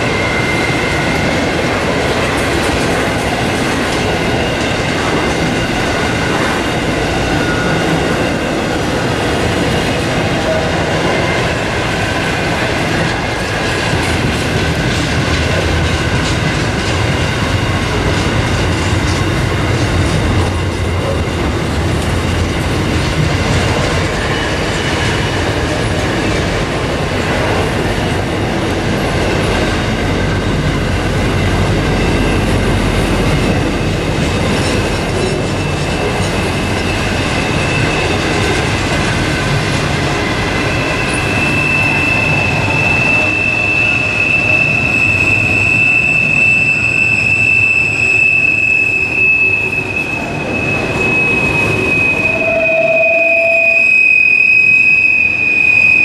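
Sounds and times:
high wheel squeal: 0.0s - 13.6s, 29.1s - 56.0s
freight wagons rumbling on rails: 0.0s - 54.6s.

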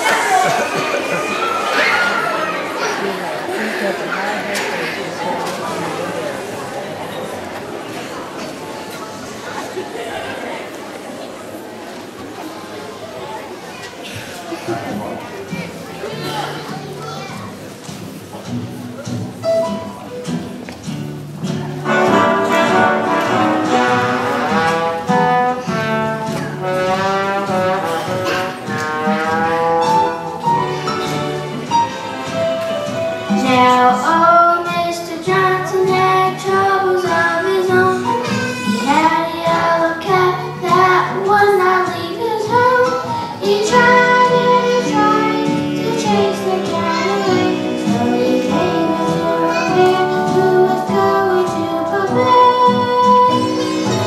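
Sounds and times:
steady lower accompaniment: 14.7s - 54.0s
brass-like melody: 21.8s - 34.0s
girl singing into a microphone: 33.3s - 54.0s.

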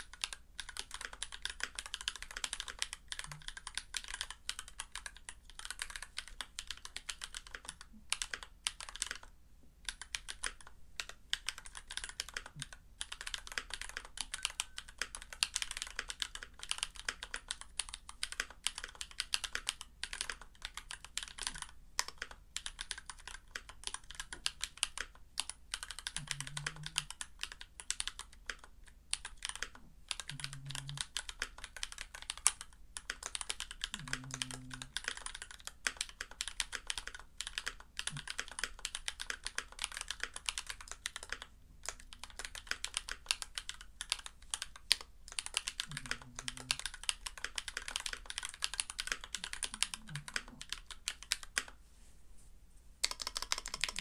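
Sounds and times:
mechanical keyboard keystroke clacks: 53.0s - 54.0s.

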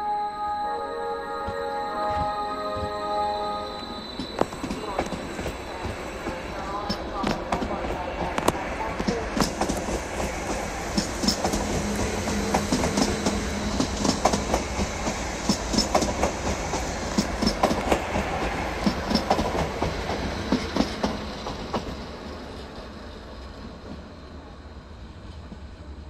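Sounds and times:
train rumble: 3.9s - 26.0s
train wheels clicking over rail joints: 4.2s - 24.1s.

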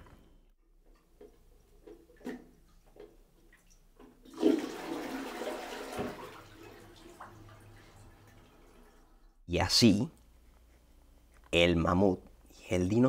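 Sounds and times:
toilet flushing: 3.5s - 9.4s.

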